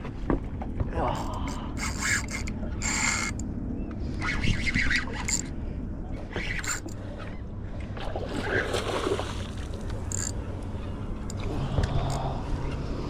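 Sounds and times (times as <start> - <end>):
spinning reel buzzing: 1.8 - 3.4.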